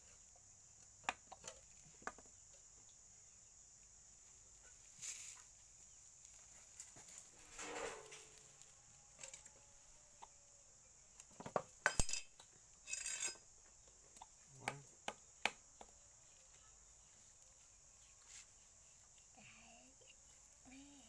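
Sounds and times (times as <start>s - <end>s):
high insect drone: 0.0s - 21.0s
sharp knocks and clinks: 11.5s - 13.4s.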